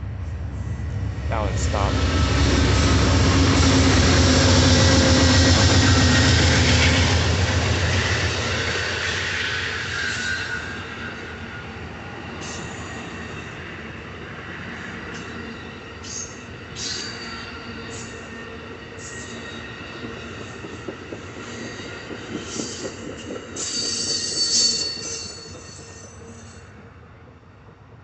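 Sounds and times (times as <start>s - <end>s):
passenger train rolling past: 0.0s - 28.0s.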